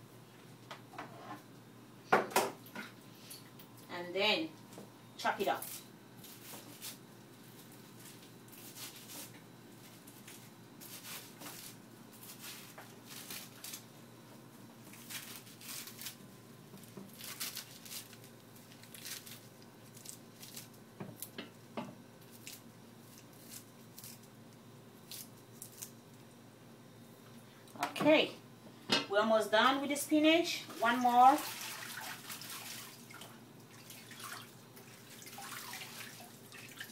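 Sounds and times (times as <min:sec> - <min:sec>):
spinach leaves tearing: 0:05.6 - 0:07.0, 0:07.6 - 0:09.3, 0:09.9 - 0:13.9, 0:14.8 - 0:16.2, 0:16.8 - 0:21.4, 0:22.2 - 0:24.4, 0:25.0 - 0:26.0.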